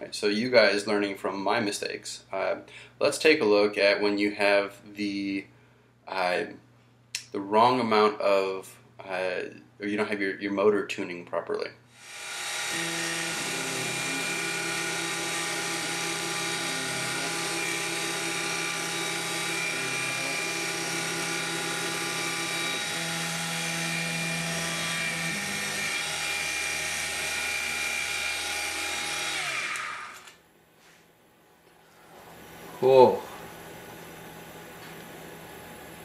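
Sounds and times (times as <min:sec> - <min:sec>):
axis motor tones: 0:12.0 - 0:30.4
spindle motor whining: 0:12.0 - 0:30.4.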